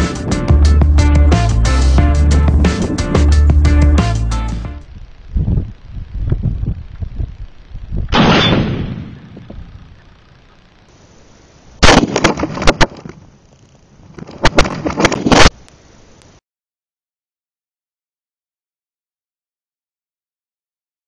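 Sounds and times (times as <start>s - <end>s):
rifle gunshot boom: 8.1s - 9.4s, 11.8s - 12.4s
rounds cracking against cinder blocks: 11.9s - 13.2s.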